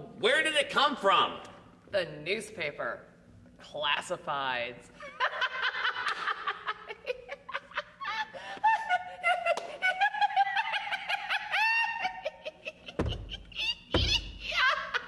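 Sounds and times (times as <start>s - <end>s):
people laughing: 5.0s - 15.0s.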